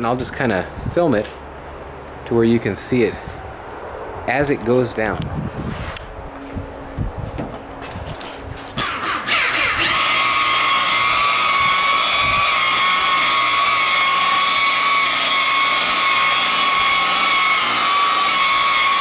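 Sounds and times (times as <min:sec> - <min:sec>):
electric buffer whining: 0:08.8 - 0:19.0.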